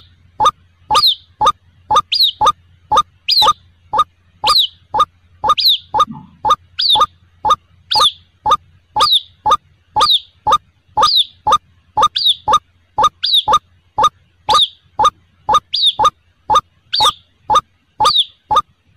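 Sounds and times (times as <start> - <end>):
faint low hum: 0.0 - 18.9
waterhen calling: 7.9 - 18.7.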